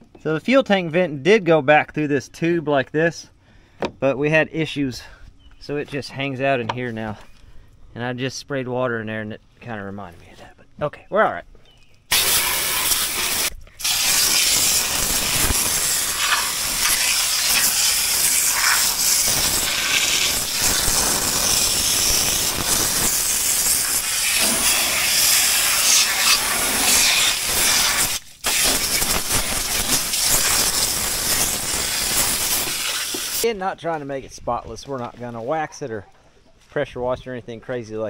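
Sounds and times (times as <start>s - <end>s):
hose spray hissing on metal: 12.1s - 33.5s.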